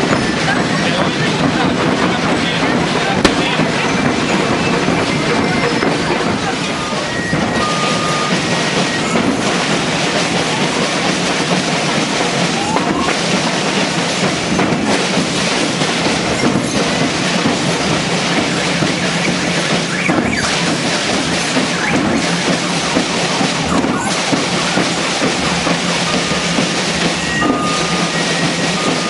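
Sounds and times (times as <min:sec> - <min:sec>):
marching band drums: 0:00.0 - 0:29.0.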